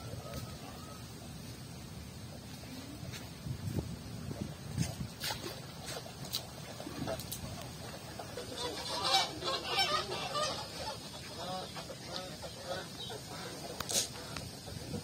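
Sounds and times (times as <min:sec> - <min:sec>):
waterfowl calling: 0:05.8 - 0:15.0.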